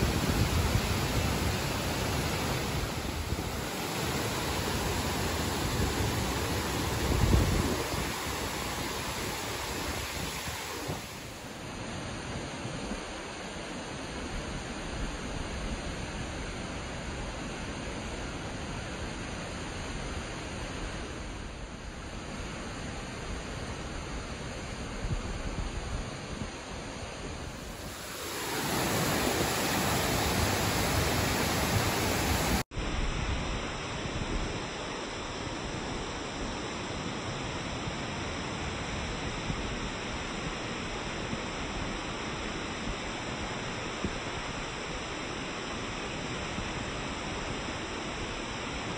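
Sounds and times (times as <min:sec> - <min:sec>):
waterfall rushing: 0:00.0 - 0:11.5, 0:27.6 - 0:32.6.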